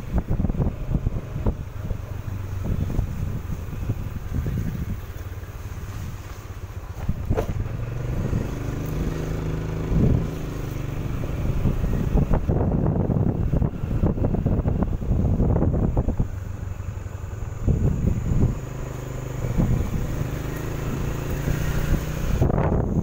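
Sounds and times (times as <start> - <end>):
motorcycle engine running: 0.0 - 23.0
wind noise on microphone: 0.0 - 23.0.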